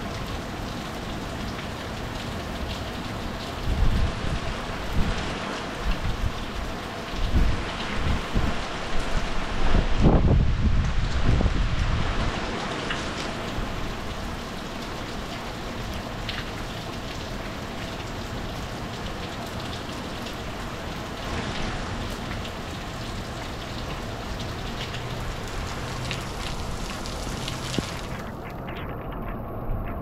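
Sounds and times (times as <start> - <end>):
raindrops ticking close by: 0.0 - 9.4, 10.8 - 30.0
heavy rain hissing: 13.3 - 28.7.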